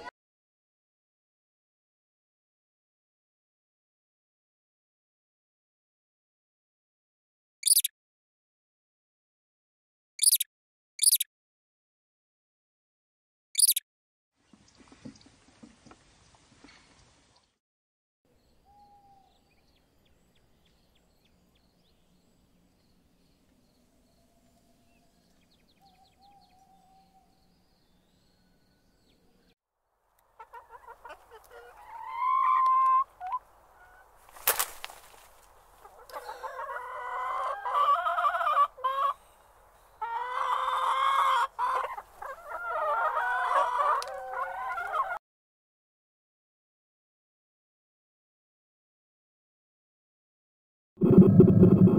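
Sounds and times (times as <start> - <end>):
faint chirps: 7.6 - 7.9, 10.2 - 11.3, 13.6 - 13.8
sharp click: 13.6 - 13.8
rooster crowing and clucking: 36.0 - 39.1, 40.1 - 45.2.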